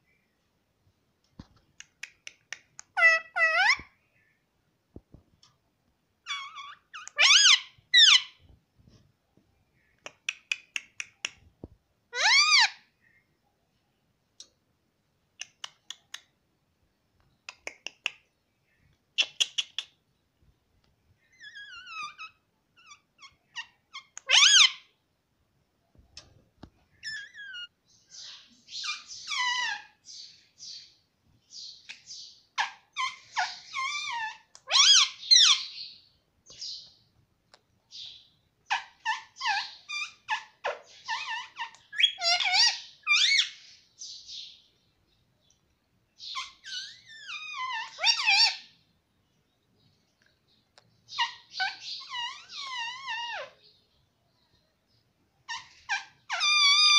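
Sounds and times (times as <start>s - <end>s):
parakeet chattering: 2.8s - 3.8s, 6.3s - 8.4s, 32.0s - 35.8s, 51.1s - 53.5s.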